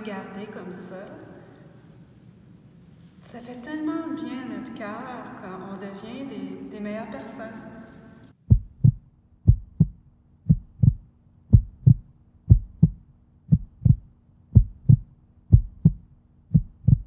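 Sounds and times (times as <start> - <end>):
faint steady hum: 0.0 - 17.0
heartbeat thumps: 8.4 - 17.0.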